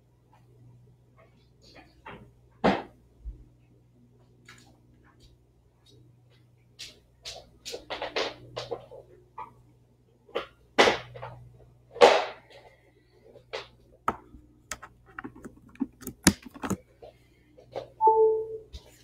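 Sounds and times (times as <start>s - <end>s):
small clicks and taps: 13.6s - 16.8s.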